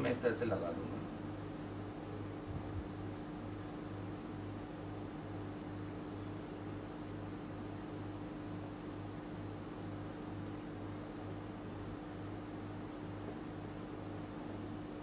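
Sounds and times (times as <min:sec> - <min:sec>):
even hiss: 0:00.0 - 0:01.4
pulsing electrical hum: 0:00.0 - 0:15.0.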